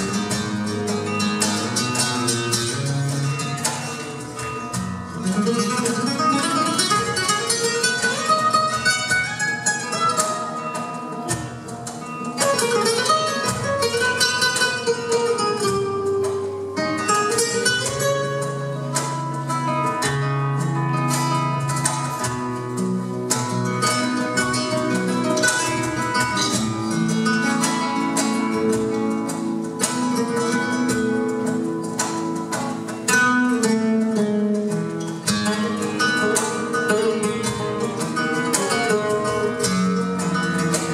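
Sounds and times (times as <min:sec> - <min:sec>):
flamenco guitar duet: 0:00.0 - 0:40.9.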